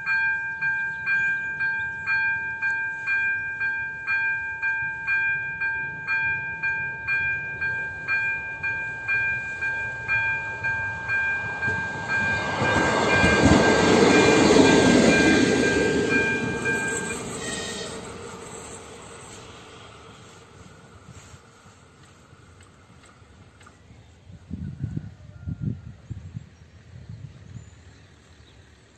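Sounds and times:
level-crossing warning bell: 0.0 - 19.4
diesel railcar passing: 0.0 - 28.9.

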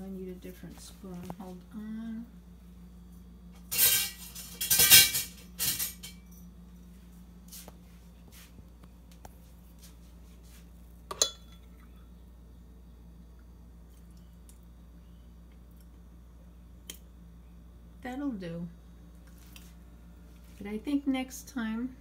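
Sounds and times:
metal cutlery clattering: 3.7 - 6.3
metal spoon clinking on glass: 11.1 - 11.6.

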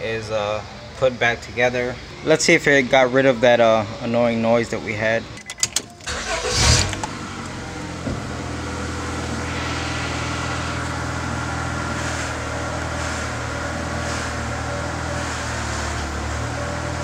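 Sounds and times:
car engine starting and idling: 5.4 - 17.0.

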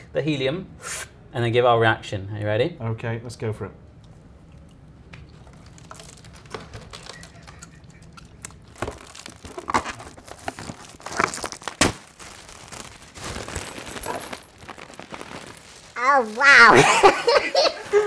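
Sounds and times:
foil balloons crinkling: 5.2 - 18.0.

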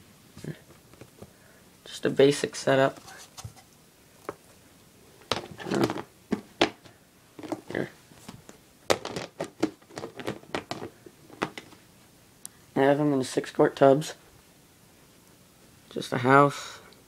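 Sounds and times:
plastic tubs clicking and knocking: 5.3 - 7.7, 8.9 - 11.8.

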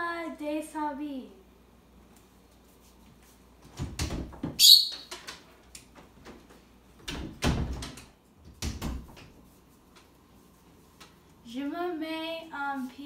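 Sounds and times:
door knocks and thumps: 3.7 - 4.6, 7.0 - 9.4.

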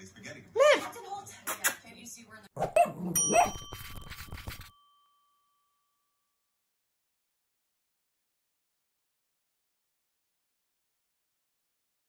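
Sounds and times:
bell-like ding: 3.2 - 6.4.

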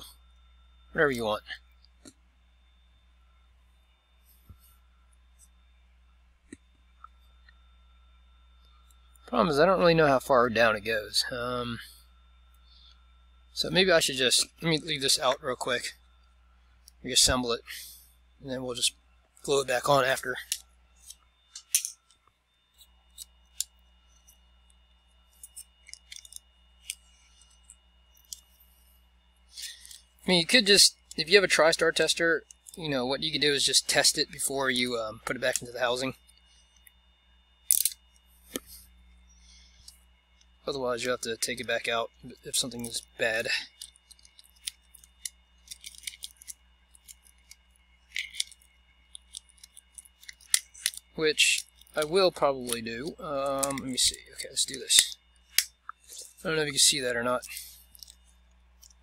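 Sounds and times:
faint electrical hum: 0.0 - 59.0
thin high whine: 0.0 - 59.0
small parts clicking and tapping: 19.3 - 28.8, 29.4 - 31.4, 32.4 - 32.8, 34.3 - 37.0, 37.6 - 59.0
hand tool clicking on device housing: 43.8 - 52.0.

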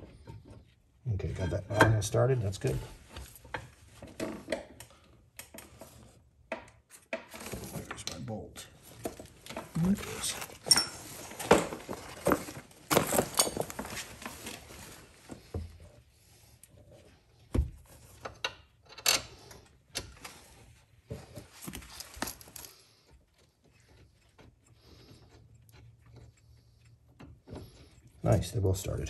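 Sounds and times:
gloved hands rustling: 8.8 - 15.8.

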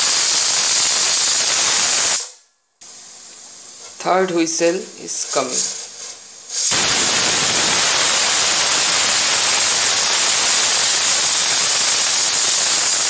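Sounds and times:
pressure cooker whistling steam: 0.0 - 2.4, 5.1 - 13.0.

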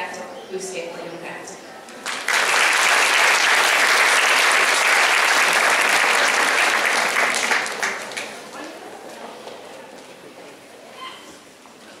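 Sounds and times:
audience applause: 2.0 - 8.6.

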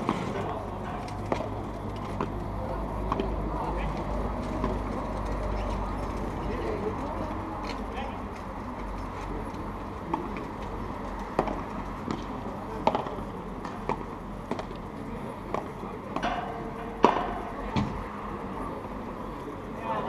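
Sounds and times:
ball bouncing on court: 11.4 - 14.7
padel ball struck by rackets: 17.0 - 17.5.

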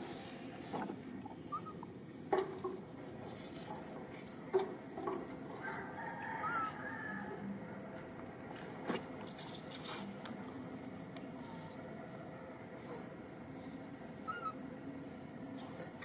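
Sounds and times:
outdoor background noise: 0.0 - 16.0
short high animal calls: 14.2 - 14.6.

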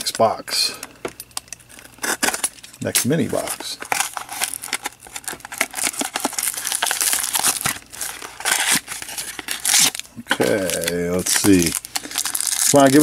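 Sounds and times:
plastic shrink-wrap crinkling and tearing: 1.6 - 13.0.

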